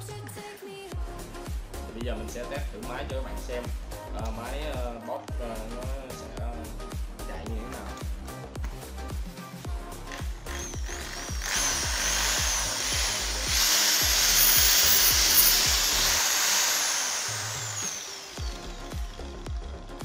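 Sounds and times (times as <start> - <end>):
electric drill motor whine: 10.1 - 19.7.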